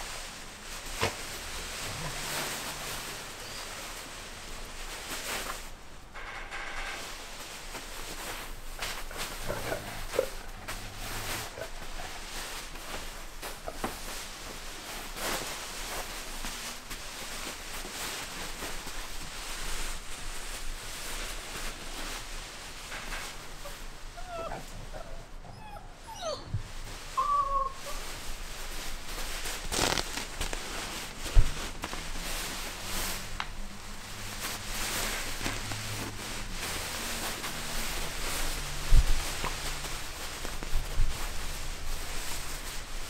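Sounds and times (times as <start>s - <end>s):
scuffling and rustling on cushions: 0.0s - 6.0s, 7.0s - 43.0s
puppies whimpering and yipping: 23.6s - 28.1s.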